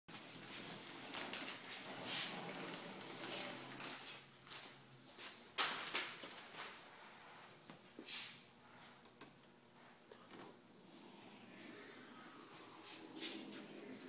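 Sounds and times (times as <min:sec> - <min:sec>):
masking tape peeling and crinkling: 0:00.1 - 0:07.8.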